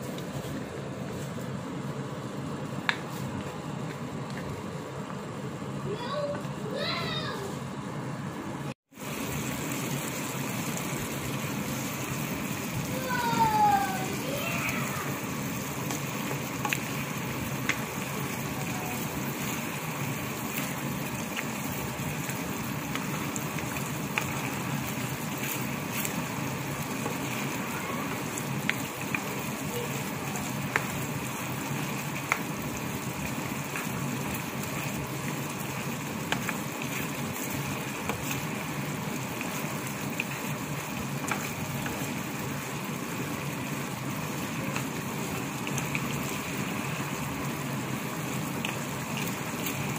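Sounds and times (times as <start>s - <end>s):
sauce bubbling in a wok: 8.9s - 49.9s
sharp pops and clicks: 36.3s - 36.7s.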